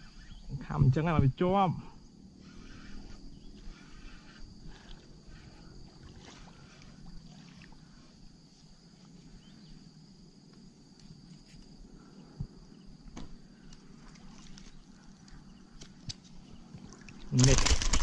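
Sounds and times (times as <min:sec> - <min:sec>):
high insect drone: 0:00.0 - 0:18.0
water splashing and sloshing: 0:04.6 - 0:08.7, 0:13.8 - 0:18.0.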